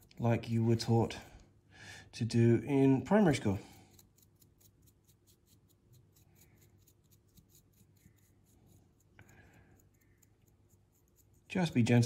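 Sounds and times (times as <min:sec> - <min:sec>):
paintbrush scratching plastic: 0:02.9 - 0:12.0.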